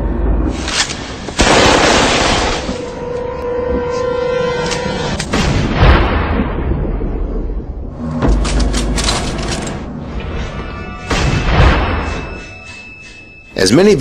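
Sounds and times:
gunshots with booming tail: 0:01.3 - 0:02.9, 0:05.3 - 0:08.5, 0:11.1 - 0:12.1
music: 0:08.0 - 0:14.0.

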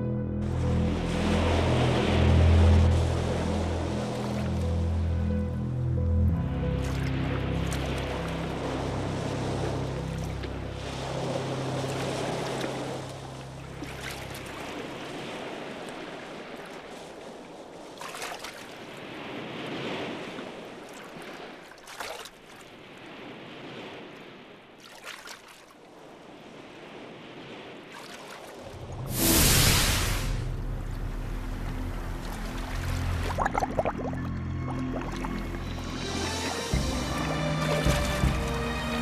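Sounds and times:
low steady drone: 0:00.0 - 0:15.0, 0:28.7 - 0:39.0
surf on rocky shore: 0:00.4 - 0:05.1, 0:07.6 - 0:25.0, 0:25.7 - 0:33.5
loud whoosh: 0:28.6 - 0:33.2.

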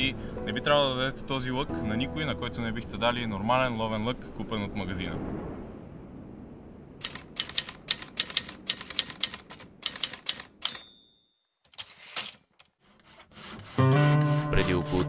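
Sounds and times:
typewriter key clacks: 0:07.0 - 0:10.9
typewriter bell ding: 0:09.9 - 0:11.7.

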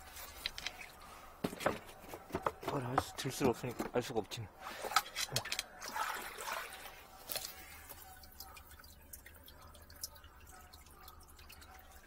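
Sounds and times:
water dripping and splashing: 0:04.6 - 0:12.0.

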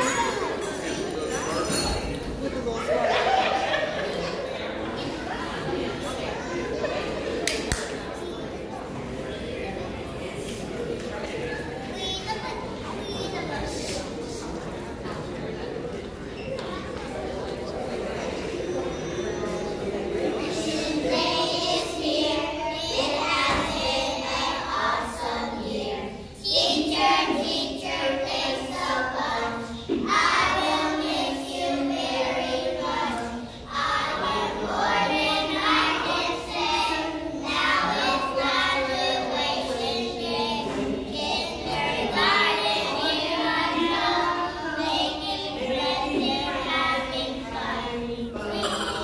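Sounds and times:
children singing: 0:00.0 - 0:07.3, 0:18.1 - 0:49.0.

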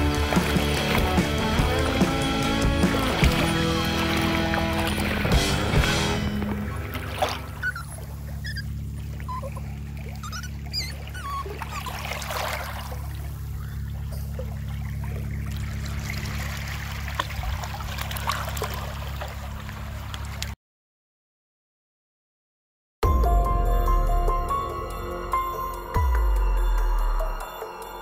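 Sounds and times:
seawater splashing: 0:00.0 - 0:20.5.

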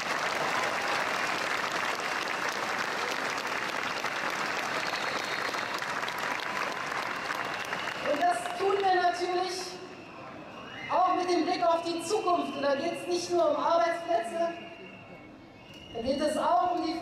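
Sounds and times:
large crowd applauding: 0:00.0 - 0:09.8.

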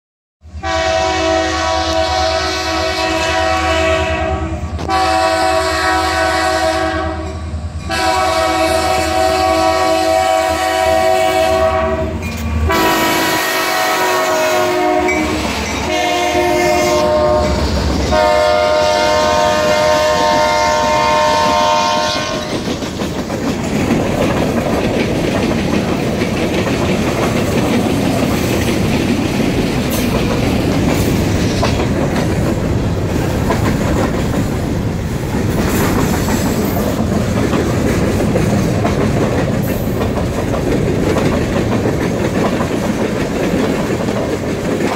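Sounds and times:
locomotive horn blasts: 0:00.6 - 0:22.6
train wheels clacking on rails: 0:01.6 - 0:44.9.

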